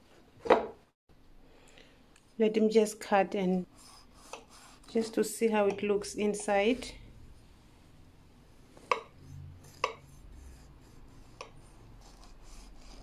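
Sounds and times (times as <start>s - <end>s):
knife cutting through cake: 8.9s - 13.0s.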